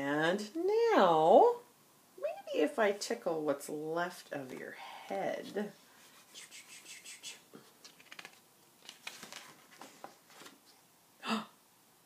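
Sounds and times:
book pages turning: 7.7 - 10.8.

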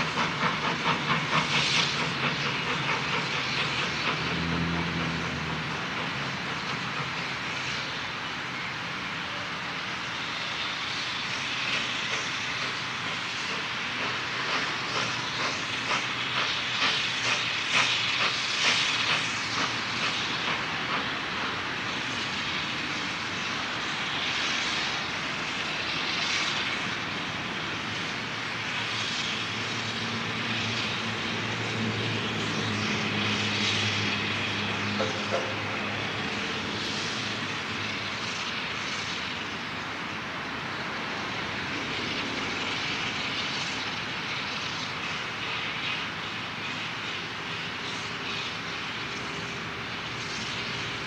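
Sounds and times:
steam hissing: 0.0 - 51.0
steam locomotive exhaust chuffs: 0.0 - 51.0.

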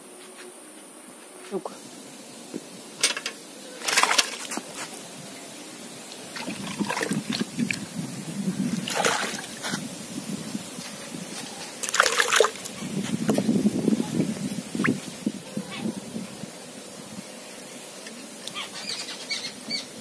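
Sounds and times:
fish splashing: 3.8 - 4.5, 6.3 - 7.8, 8.7 - 9.6, 11.8 - 12.6
water sloshing in metal bucket: 3.8 - 4.5, 6.3 - 7.8, 8.8 - 9.6, 11.8 - 12.6.

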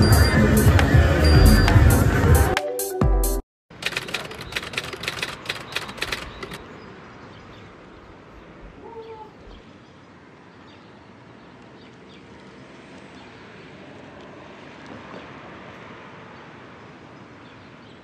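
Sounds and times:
background music with beat: 0.0 - 3.4
outdoor background noise: 3.7 - 18.0.

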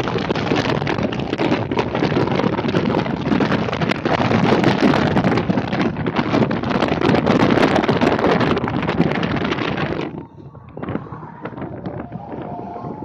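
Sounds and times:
motorcycle road and engine noise: 0.0 - 13.0
wind buffeting microphone: 0.0 - 13.0.

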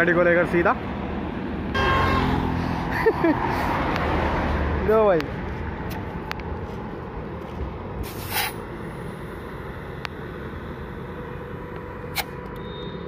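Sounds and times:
steady low rumble: 3.9 - 12.5
air hissing from tyre chuck: 8.0 - 10.9.

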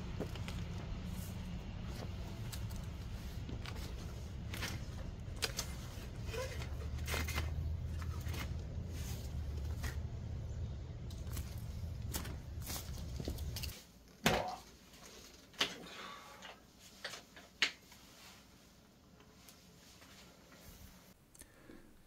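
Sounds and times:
steady low rumble: 0.0 - 13.8
bike parts clicking and rattling: 2.3 - 17.8.

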